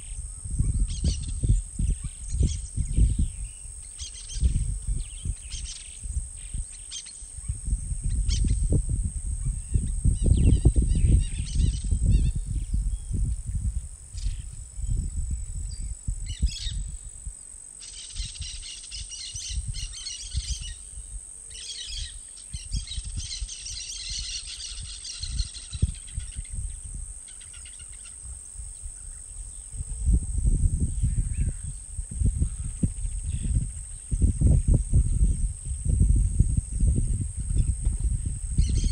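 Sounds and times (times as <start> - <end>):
birds calling and chirping: 0.0 - 8.8, 9.4 - 13.2, 17.8 - 29.8, 30.9 - 38.9
low gusty rumble: 0.0 - 17.4, 28.2 - 38.9
high-pitched insect drone: 0.0 - 38.9.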